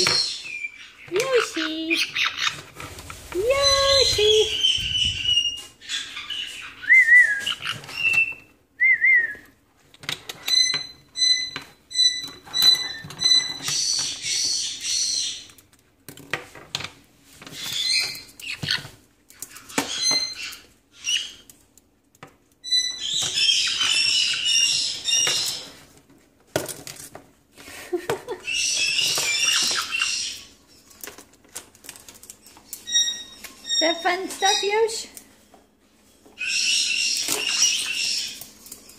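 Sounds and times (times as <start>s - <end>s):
baby parrots chirping and squawking: 0.0s - 2.8s, 3.5s - 6.8s, 10.5s - 15.5s, 17.5s - 21.5s, 22.6s - 25.8s, 28.4s - 30.8s, 32.8s - 34.9s, 36.4s - 38.5s.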